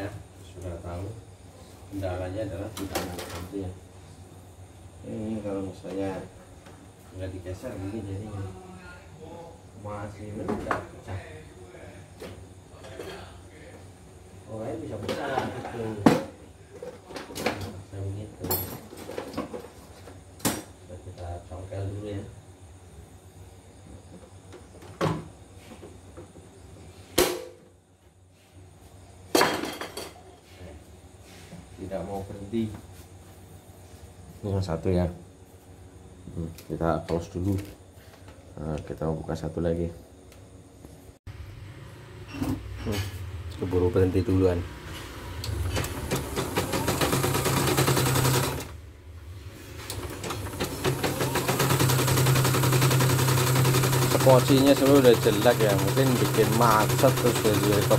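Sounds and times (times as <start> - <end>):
motor hum: 41.3 - 57.9
embroidery machine needle rattle: 45.8 - 48.7, 49.9 - 57.9.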